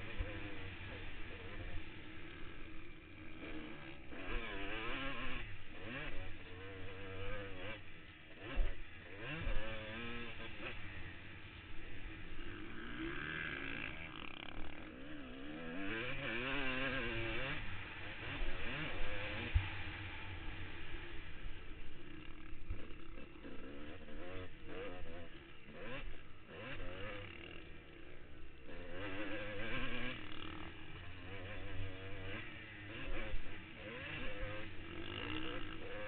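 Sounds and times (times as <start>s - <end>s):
dirt bike engine revving: 0.0s - 36.0s.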